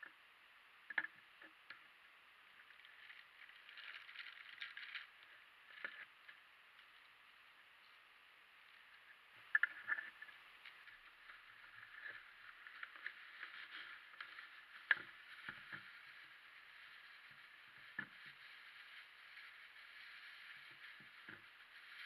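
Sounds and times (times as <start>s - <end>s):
plastic bags crinkling: 3.0s - 5.2s.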